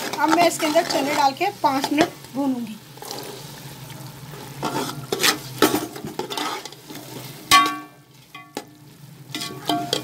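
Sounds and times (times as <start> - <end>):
metal spoon scraping pot: 0.0 - 2.1, 4.6 - 8.6, 9.3 - 10.0
masala sizzling in pot: 0.0 - 10.0
spoon clinking against pot: 9.3 - 10.0.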